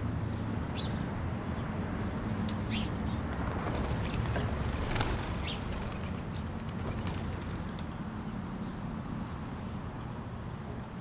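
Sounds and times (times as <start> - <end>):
bird wings flapping: 3.3 - 8.0.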